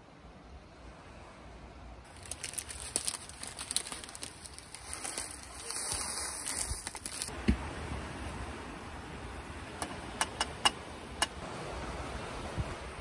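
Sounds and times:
plastic packet crinkling: 2.1s - 7.3s.

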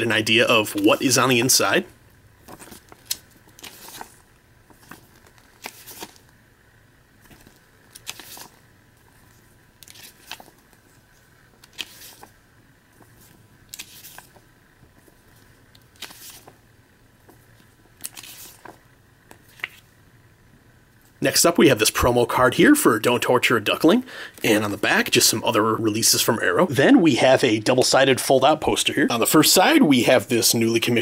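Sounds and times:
pages turning: 2.4s - 6.4s, 7.2s - 16.6s, 17.2s - 20.0s.

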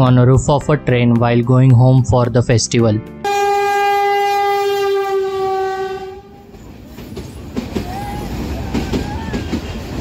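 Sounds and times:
train horn blast: 3.2s - 6.5s
train rumbling and clattering: 5.8s - 10.0s.

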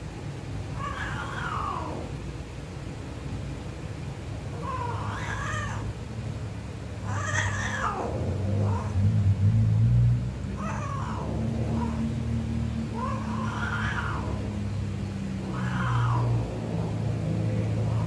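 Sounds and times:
cats yowling: 0.7s - 2.2s, 4.5s - 6.0s, 7.0s - 9.0s, 10.5s - 18.0s.

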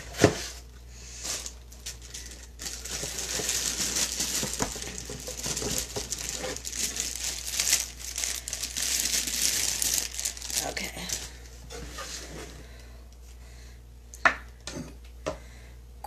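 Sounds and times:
plastic wrapping crinkling: 1.1s - 12.1s.

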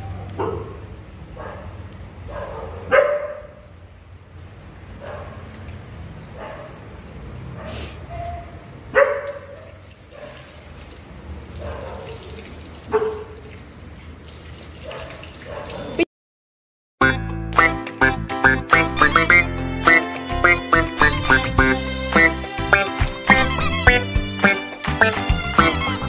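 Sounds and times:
dog barking and whining: 21.0s - 21.6s.

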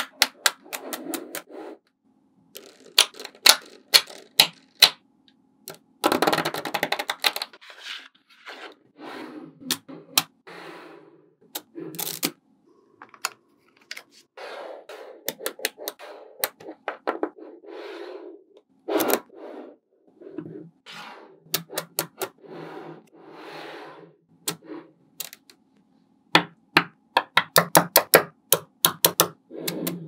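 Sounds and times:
magnetic balls clicking together: 2.6s - 5.0s, 27.2s - 30.0s.

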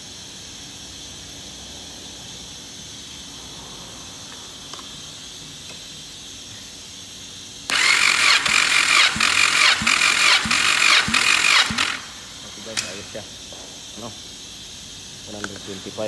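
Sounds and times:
electric starter whirring and chugging: 7.7s - 12.9s.

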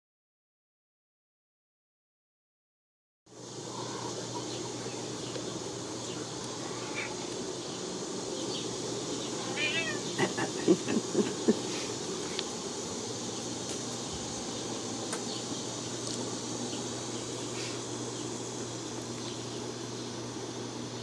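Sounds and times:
background hiss: 3.3s - 21.0s
cat meowing: 9.5s - 10.2s.

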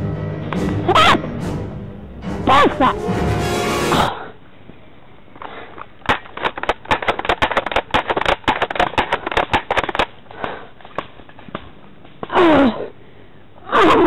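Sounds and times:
woman grunting in pain: 12.3s - 12.9s, 13.6s - 14.0s.

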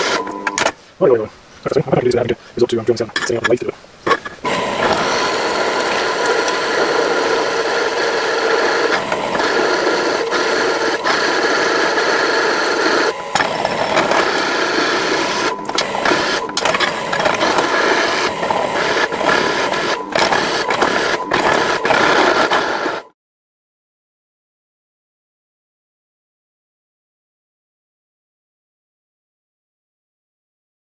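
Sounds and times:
drill press whirring: 0.0s - 0.7s, 4.1s - 23.1s.

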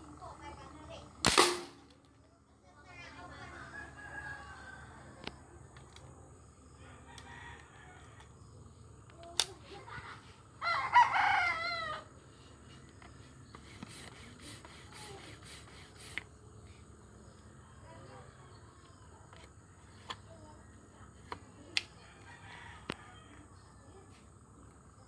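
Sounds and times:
sharp crack: 1.2s - 2.1s
rooster crowing: 3.4s - 5.2s, 6.7s - 8.4s, 10.6s - 12.2s, 22.0s - 23.6s.

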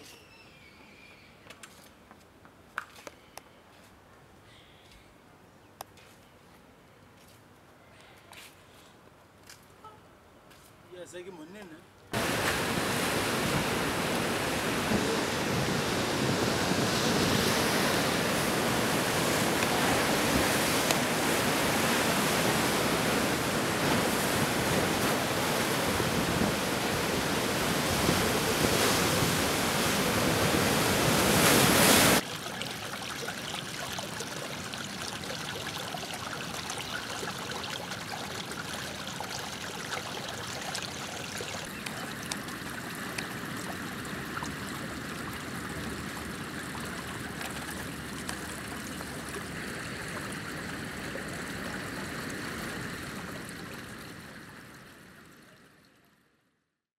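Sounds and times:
surf rushing around rocks: 12.2s - 41.8s
trickle of running water: 32.2s - 56.2s.

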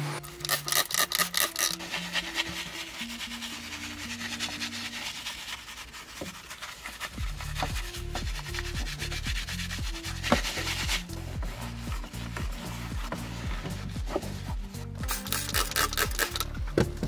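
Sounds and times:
faint background music: 0.0s - 17.0s
spray bottle squirts: 0.2s - 2.0s, 15.0s - 16.6s
brush scrubbing: 0.4s - 16.5s.

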